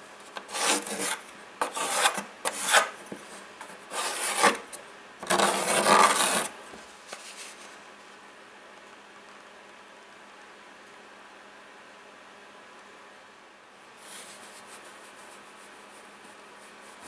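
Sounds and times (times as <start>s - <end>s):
pencil scratching on plywood: 0.5s - 3.0s, 3.6s - 6.5s.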